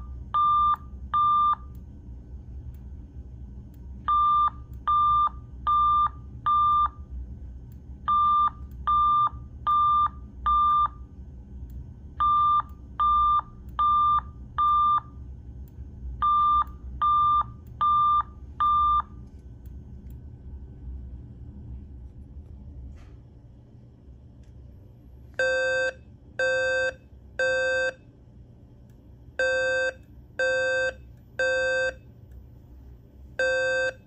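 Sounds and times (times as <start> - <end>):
fire alarm beeps: 0.0 - 1.7, 4.1 - 7.0, 8.1 - 11.0, 16.2 - 19.2, 25.4 - 28.0, 29.4 - 32.0, 33.4 - 34.0.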